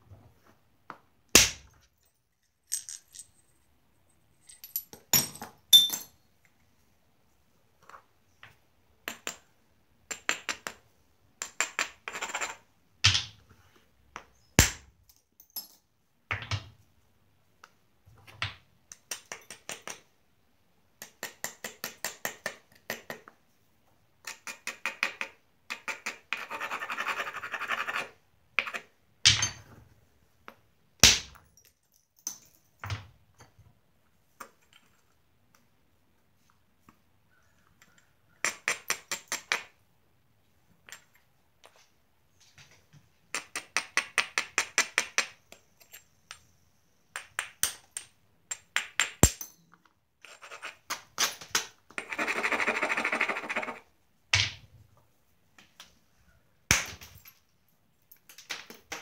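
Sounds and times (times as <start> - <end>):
stone scratching flint edge: 50.2 - 51.0, 52.0 - 53.8.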